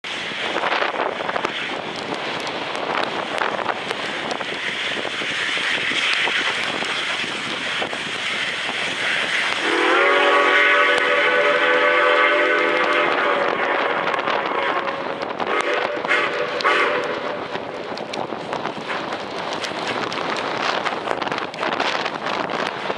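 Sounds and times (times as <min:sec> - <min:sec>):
steam locomotive exhaust rushing: 0:00.0 - 0:22.9
steam whistle chord: 0:09.6 - 0:17.4.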